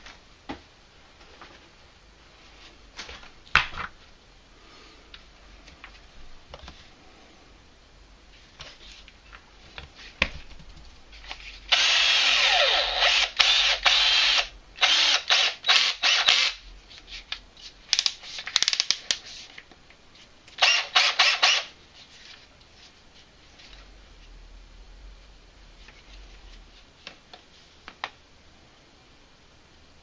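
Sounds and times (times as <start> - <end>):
cordless drill motor running: 11.7 - 16.6, 20.6 - 21.7
drill clicks: 11.7 - 16.6, 20.6 - 21.7.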